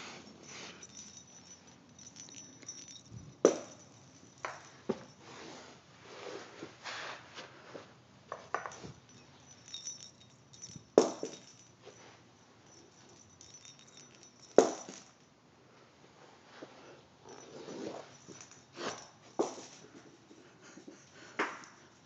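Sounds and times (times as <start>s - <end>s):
faint jingling: 0.0s - 5.8s, 8.3s - 15.4s, 16.7s - 22.0s
toy balls knocking on carpet: 2.0s - 5.1s, 8.3s - 8.9s, 9.6s - 11.6s, 13.8s - 15.1s.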